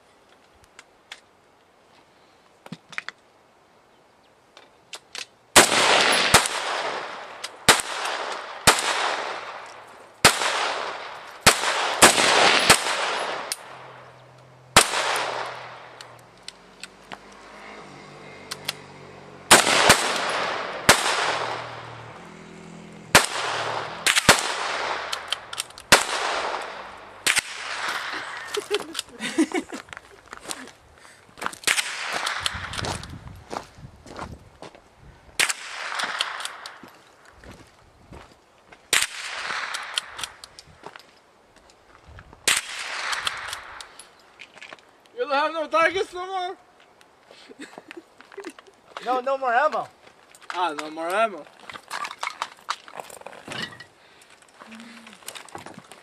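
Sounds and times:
rifle shots echoing: 5.6s - 16.2s, 19.4s - 22.4s, 23.0s - 28.6s, 31.6s - 32.8s, 35.4s - 36.8s, 38.9s - 40.4s, 42.4s - 44.0s.

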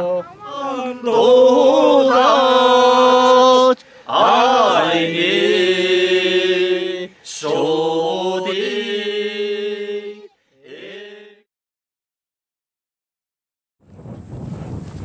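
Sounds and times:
person singing chant-like: 0.0s - 11.4s.

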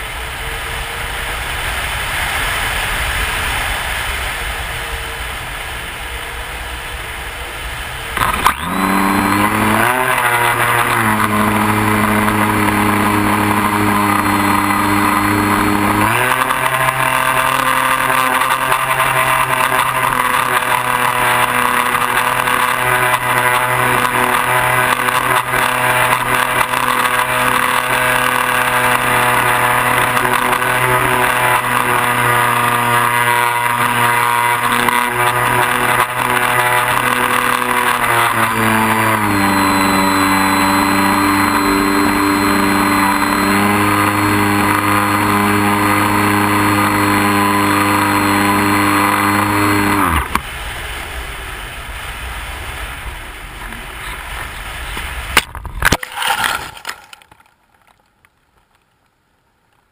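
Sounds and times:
airflow noise: 0.0s - 56.9s
model plane motor whine: 3.2s - 50.6s
sharp cracks in dry brush: 55.0s - 59.9s.

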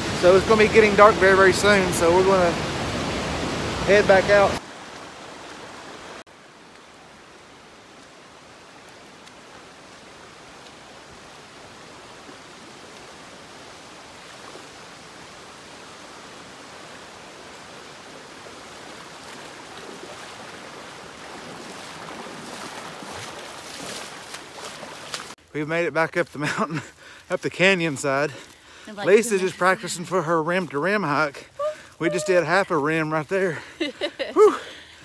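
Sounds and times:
river running over rocks: 0.0s - 25.4s, 26.4s - 33.6s
splashing wading footsteps: 18.1s - 25.4s.

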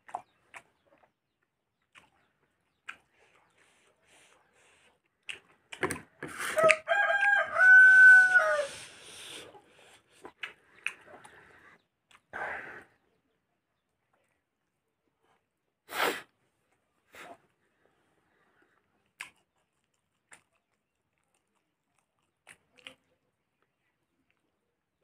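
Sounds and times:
clicks and smacks of eating: 0.0s - 7.4s, 9.6s - 12.3s, 18.8s - 24.5s
rooster crowing: 6.6s - 8.8s.

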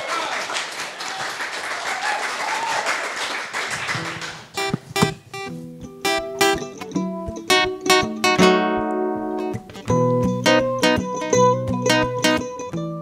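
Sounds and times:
audience applauding: 0.0s - 4.6s
acoustic guitar and mandolin playing: 4.1s - 13.0s.

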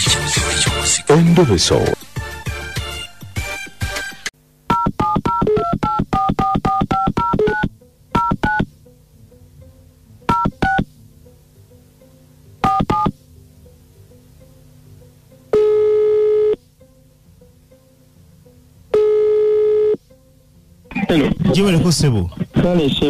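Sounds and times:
music: 0.0s - 23.0s
faint steady hum: 4.3s - 23.0s
touch-tone keypad beeps: 4.7s - 8.7s, 10.3s - 10.9s, 12.6s - 13.1s.

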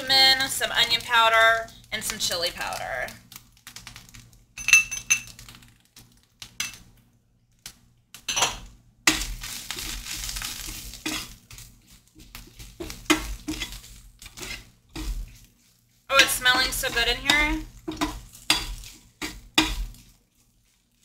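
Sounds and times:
frying hiss: 0.0s - 4.4s, 9.1s - 21.0s
metal spoon clinking on ceramic: 4.6s - 5.3s
spoon scraping and stirring in pan: 8.3s - 21.0s
spoon knocking on pan: 16.2s - 19.9s.

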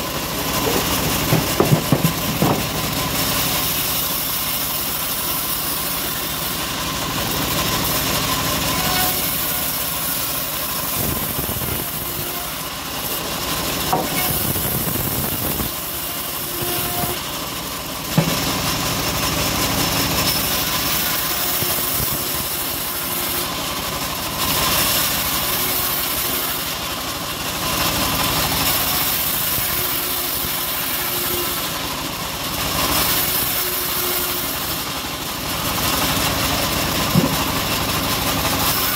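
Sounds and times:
band sawmill sawing log: 0.0s - 38.9s
sharp knock: 18.2s - 18.6s.

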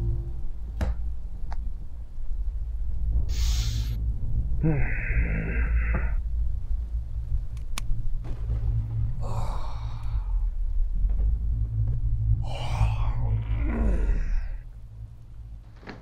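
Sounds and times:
low rumbling drone: 0.0s - 16.0s
breathy hiss: 3.3s - 4.0s
long breathy sigh: 4.6s - 6.2s, 9.2s - 10.5s.

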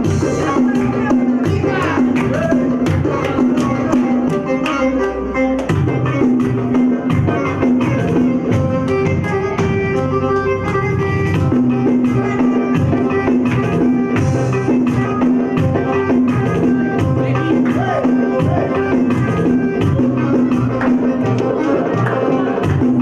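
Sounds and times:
loud dance music: 0.0s - 23.0s.

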